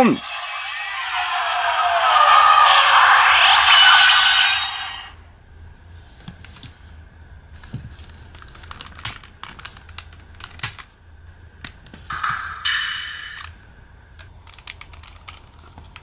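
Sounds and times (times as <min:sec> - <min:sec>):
plastic toy clicks and clacks: 0:08.1 - 0:10.9, 0:14.2 - 0:16.0.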